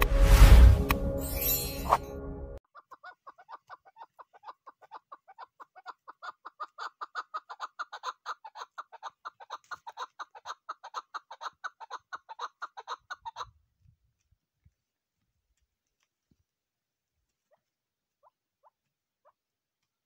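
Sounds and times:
partridge chuck calls: 2.7s - 13.5s.

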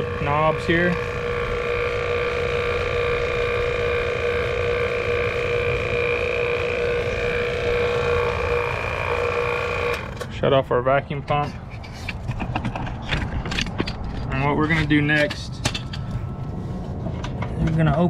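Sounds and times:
vacuum pump whining: 0.0s - 10.5s.

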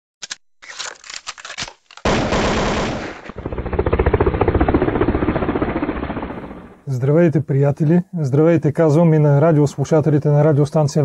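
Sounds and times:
single gunshots: 2.0s - 3.4s
rapid automatic gunfire: 2.0s - 6.8s.

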